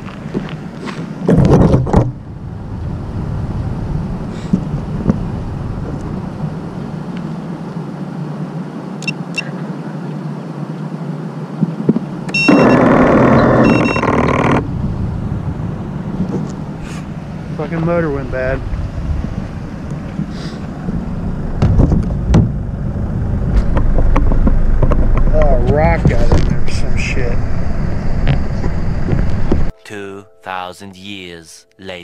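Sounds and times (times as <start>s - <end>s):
steady background noise: 0.0s - 29.8s
drone motors whining: 11.8s - 15.0s.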